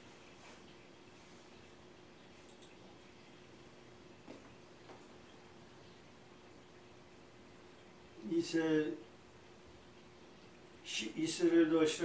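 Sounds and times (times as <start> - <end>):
faint steady hum: 0.0 - 12.0
faint clicks: 2.4 - 2.9.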